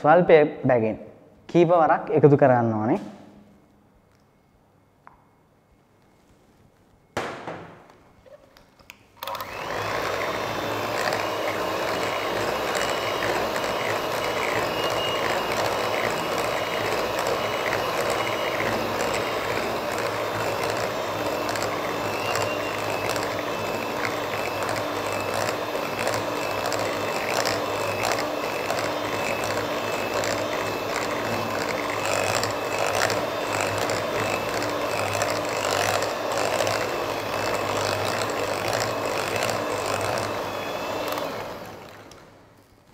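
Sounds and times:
electric hand mixer running: 0:09.2 - 0:42.4.

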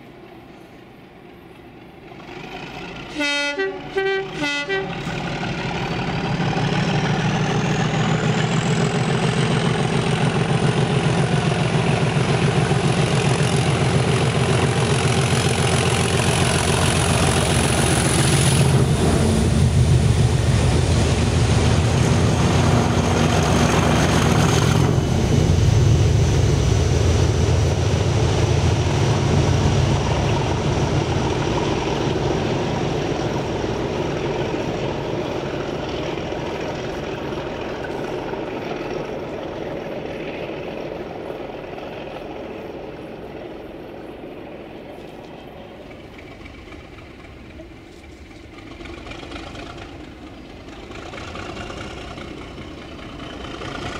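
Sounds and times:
coaches rumbling on rails: 0:00.0 - 0:53.9
diesel engine growl: 0:02.1 - 0:53.9
locomotive horn blasts: 0:03.1 - 0:05.1.

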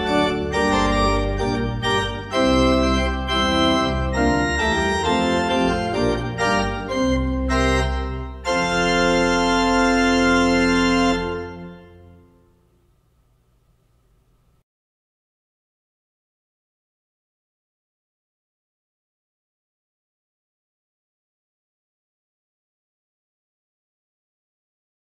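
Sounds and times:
pipe organ chords: 0:00.0 - 0:13.2.

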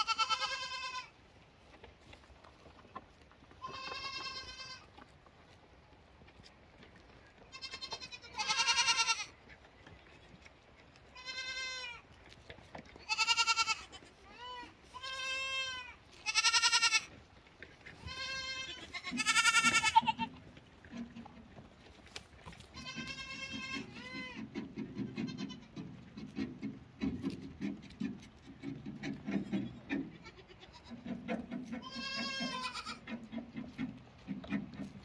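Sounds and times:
goat kids bleating: 0:00.0 - 0:01.2, 0:03.5 - 0:05.0, 0:07.4 - 0:09.4, 0:11.0 - 0:12.0, 0:13.0 - 0:17.2, 0:17.9 - 0:21.2, 0:22.5 - 0:26.6, 0:28.0 - 0:33.4
soft crunching and rustling: 0:00.1 - 0:35.0.

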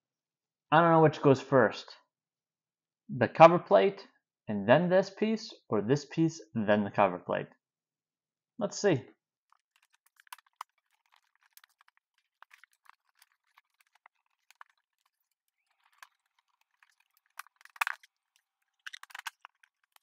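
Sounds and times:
plastic parts clicking and tapping: 0:09.5 - 0:20.0.

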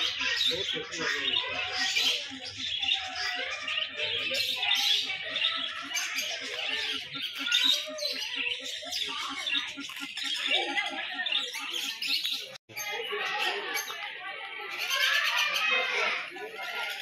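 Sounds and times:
caged birds chirping: 0:00.0 - 0:17.0.

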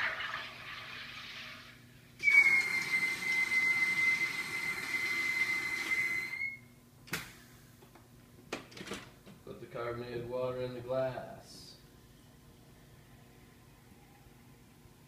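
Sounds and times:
soda maker hissing: 0:00.0 - 0:06.6
high-pitched whistle: 0:02.2 - 0:06.8.

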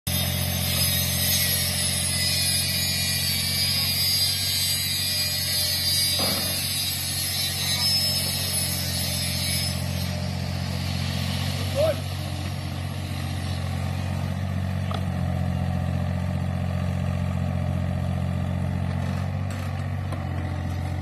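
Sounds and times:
falling squeal: 0:00.1 - 0:10.3
excavator diesel engine: 0:00.1 - 0:21.0
excavator digging soil: 0:18.3 - 0:21.0.

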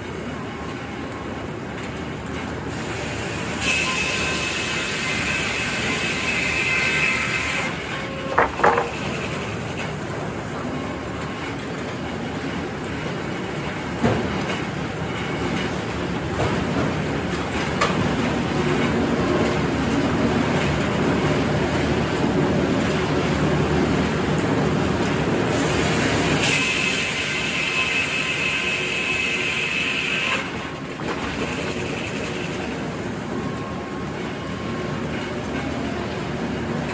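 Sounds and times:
knocks: 0:08.3 - 0:09.0
mill machinery running: 0:29.0 - 0:36.9.

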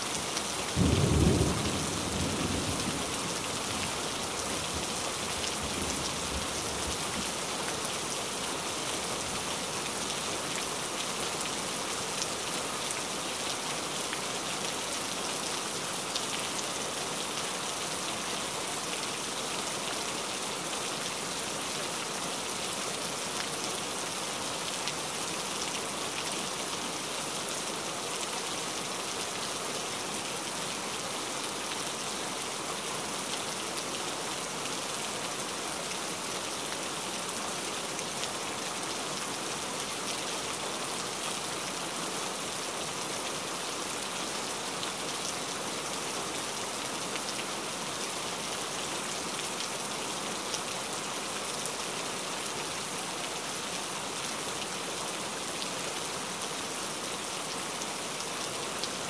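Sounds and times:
steady rain: 0:00.0 - 0:59.0.

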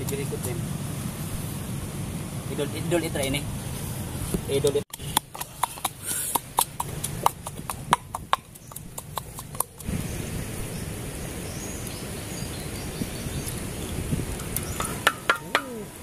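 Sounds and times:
sharp clicks and snaps: 0:04.9 - 0:09.9.

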